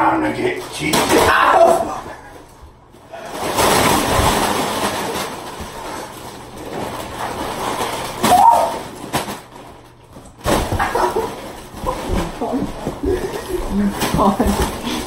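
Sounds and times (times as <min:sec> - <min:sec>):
chips pouring and rustling: 0:03.1 - 0:09.9.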